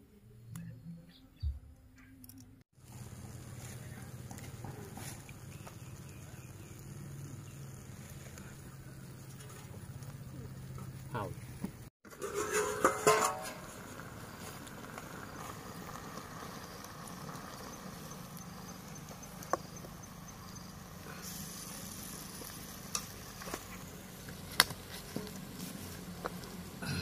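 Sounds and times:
food sizzling in a wok: 2.8s - 10.3s, 12.1s - 26.9s
crackling wood fire: 2.8s - 27.0s
metallic clatter: 12.1s - 13.8s.

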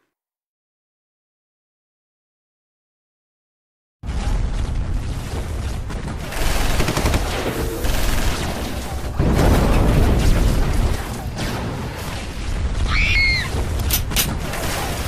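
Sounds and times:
explosions: 4.0s - 15.0s
rapid machine-gun fire: 5.5s - 12.8s, 13.5s - 15.0s.

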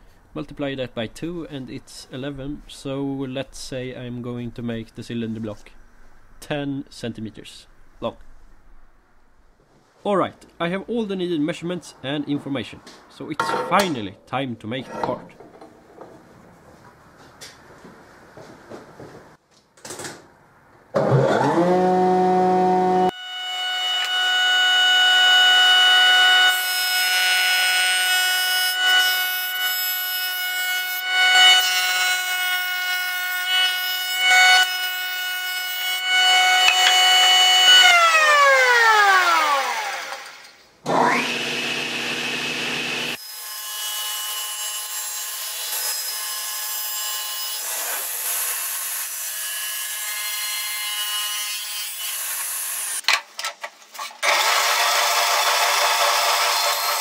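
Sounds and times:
board fed over cutter head: 35.8s - 43.2s.

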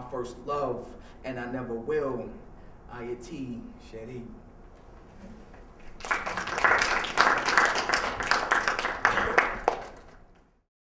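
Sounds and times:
audience applauding: 5.8s - 10.4s.

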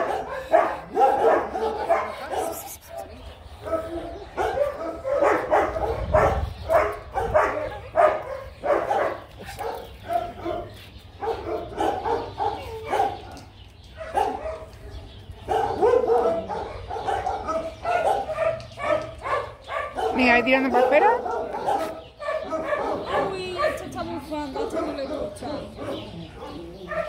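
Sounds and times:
dog barking: 0.0s - 3.0s, 3.6s - 13.4s, 14.0s - 27.0s.

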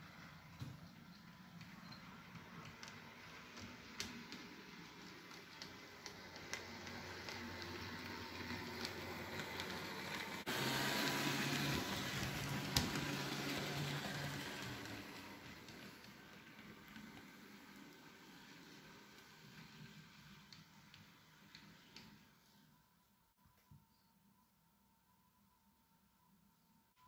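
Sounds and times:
model train motor hum: 3.0s - 22.0s.

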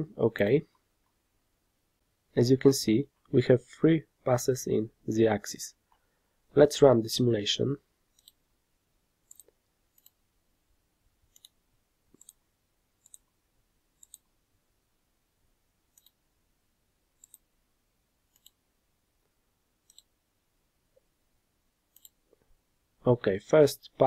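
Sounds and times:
computer mouse clicks: 8.1s - 8.4s, 9.2s - 10.2s, 11.3s - 12.4s, 13.0s - 13.3s, 14.0s - 14.3s, 15.9s - 16.2s, 17.2s - 17.5s, 18.3s - 18.6s, 19.8s - 20.1s, 21.9s - 22.3s.

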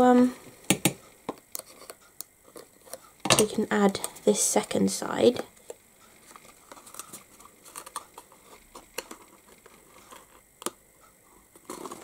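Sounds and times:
card rustling: 5.6s - 10.5s.

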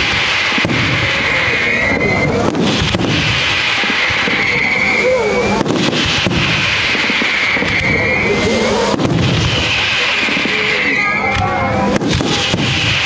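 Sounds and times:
fireworks bangs: 0.0s - 13.0s
fireworks crackling and hissing: 0.0s - 13.0s
high wavering whistles: 1.2s - 2.4s, 3.8s - 5.6s, 6.8s - 8.6s, 10.5s - 11.4s.

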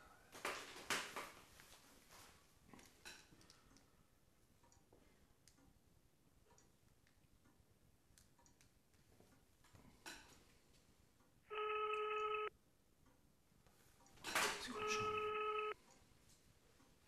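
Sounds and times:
telephone ringback tone: 11.5s - 12.5s, 14.7s - 15.8s.

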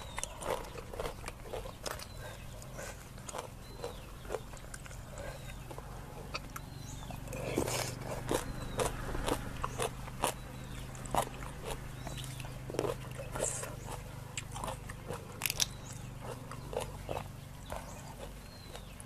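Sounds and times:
crunching and chewing crab shell: 0.0s - 19.0s.

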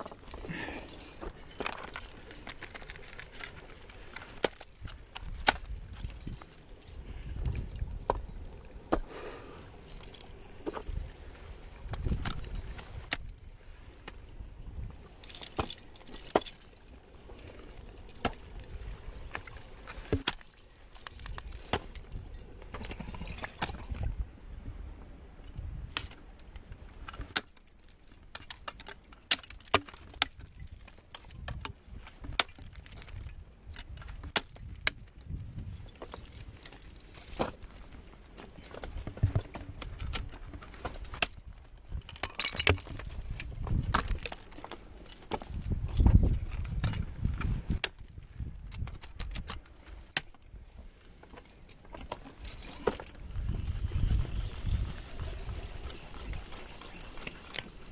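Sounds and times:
metal climbing gear clinking: 0.0s - 24.2s, 25.4s - 57.9s
ice axes striking ice: 4.2s - 6.8s, 15.3s - 16.8s, 18.1s - 18.6s, 19.3s - 23.9s, 27.2s - 35.0s, 42.0s - 46.8s.

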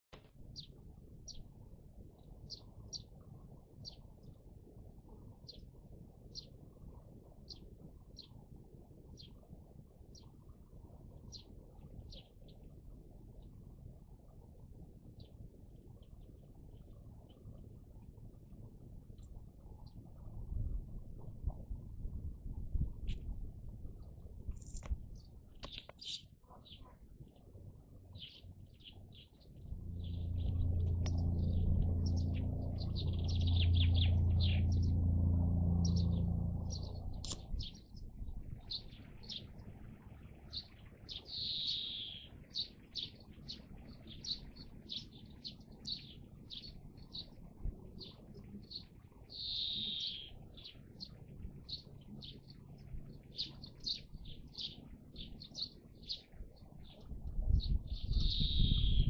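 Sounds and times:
songbirds chirping: 0.1s - 59.0s
loud low steady hum: 29.6s - 37.8s.

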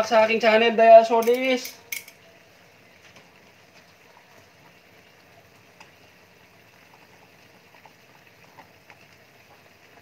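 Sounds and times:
liquid simmering in a pan: 0.0s - 10.0s.

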